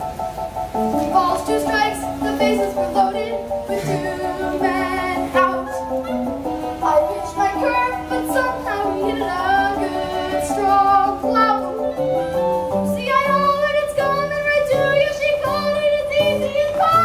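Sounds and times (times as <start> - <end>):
instrumental accompaniment: 0.0 - 17.0
child singing: 1.0 - 6.2, 6.8 - 17.0.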